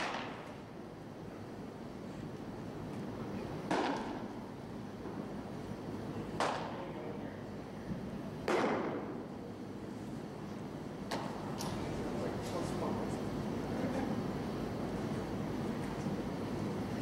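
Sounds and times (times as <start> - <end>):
baseball popping into mitt: 3.7 - 4.2.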